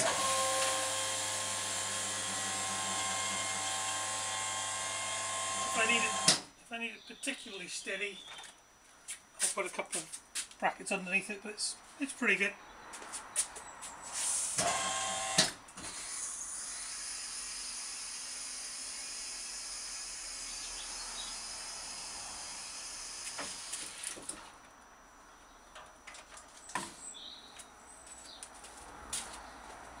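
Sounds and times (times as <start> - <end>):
steady hiss of hoist: 14.0 - 20.0.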